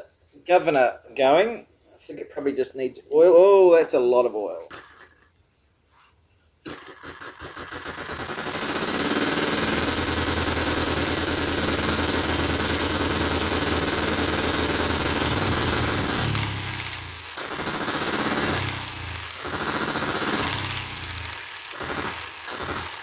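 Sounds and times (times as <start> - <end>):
model engine running fast: 6.7 - 23.0.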